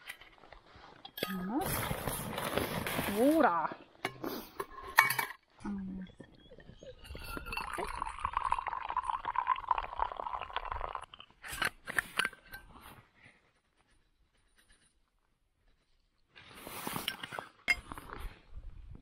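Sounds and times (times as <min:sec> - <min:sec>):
liquid pouring into a cup: 0:06.2 - 0:11.4.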